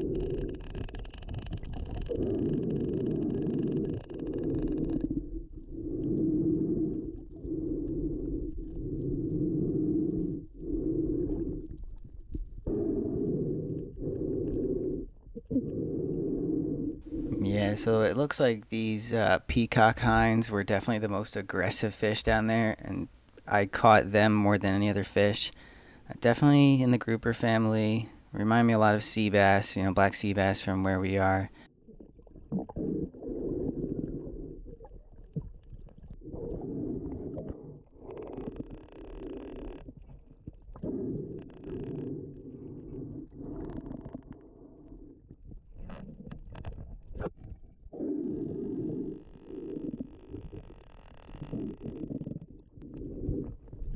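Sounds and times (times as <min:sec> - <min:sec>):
muffled underwater water rumble: 0:00.0 - 0:17.9, 0:31.2 - 0:53.9.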